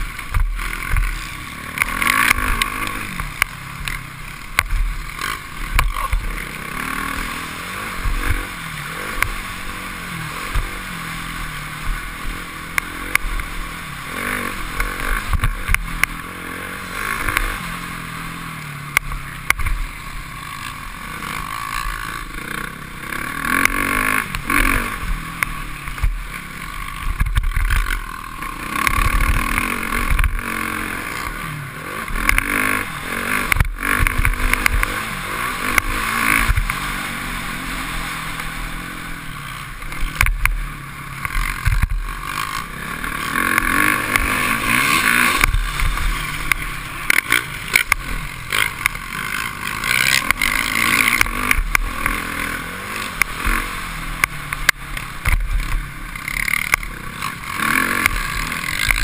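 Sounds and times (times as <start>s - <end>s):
motocross bike engine revving: 0.0s - 59.0s.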